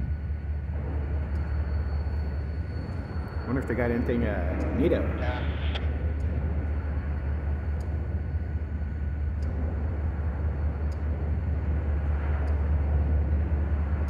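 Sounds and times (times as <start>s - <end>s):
diesel locomotive rumble: 0.0s - 14.0s.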